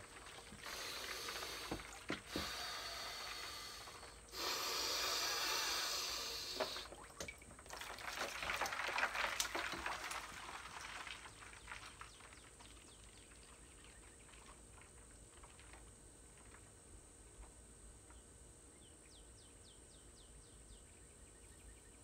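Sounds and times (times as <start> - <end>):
water splashing and sloshing: 0.0 - 4.2, 6.5 - 16.8
hissing breaths: 0.6 - 6.9.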